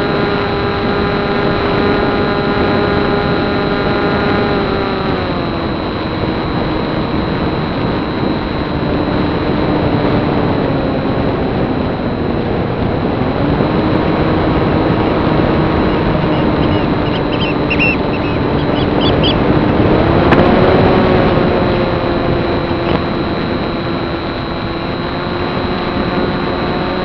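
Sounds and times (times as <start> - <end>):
electric motor and propeller: 0.0 - 27.0
short high chirps: 16.3 - 19.4.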